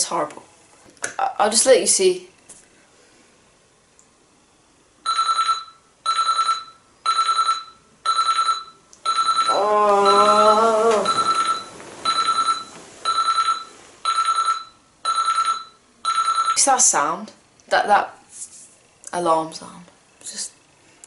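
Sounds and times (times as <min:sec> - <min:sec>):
electronic alarm beeping: 0:05.1 - 0:16.6
person groaning: 0:09.5 - 0:11.1.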